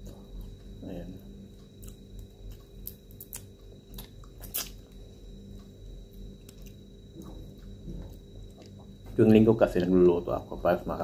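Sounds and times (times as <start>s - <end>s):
chewing: 1.6s - 5.0s.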